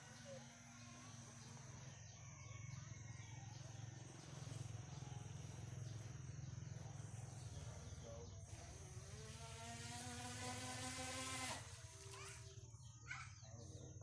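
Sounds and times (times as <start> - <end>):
steady low hum: 0.0 - 14.0
thin high whine: 7.6 - 12.6.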